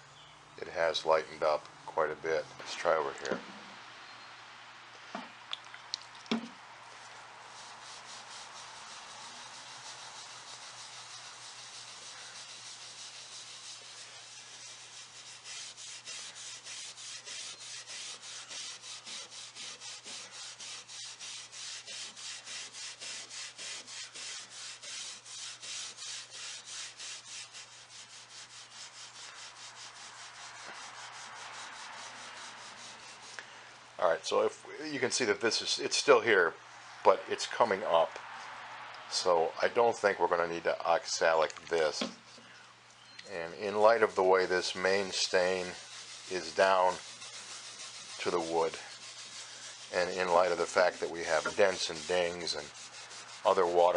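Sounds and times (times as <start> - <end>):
steel wool scrubbing wood: 7.0 - 33.5, 43.4 - 53.9.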